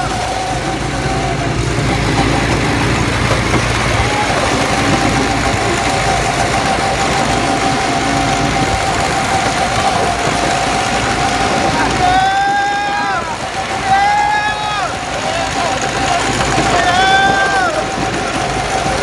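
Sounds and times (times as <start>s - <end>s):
go-kart engines droning: 0.0s - 19.0s.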